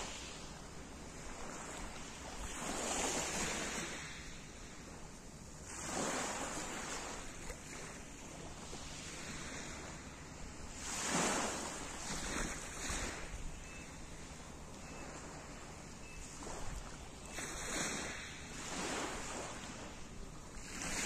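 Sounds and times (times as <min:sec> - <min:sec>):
waves washing on pebble beach: 0:00.0 - 0:04.5, 0:10.7 - 0:14.3, 0:14.9 - 0:19.8, 0:20.6 - 0:21.0.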